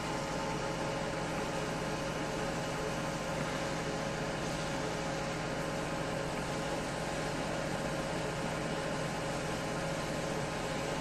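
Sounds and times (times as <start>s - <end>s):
pump drone: 0.0s - 11.0s
water jet spraying road: 0.0s - 11.0s.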